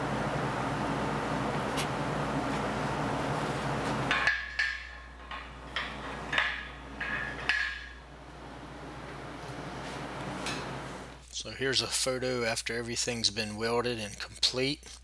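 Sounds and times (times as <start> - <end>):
steel struck with ringing taps: 4.1 - 8.0.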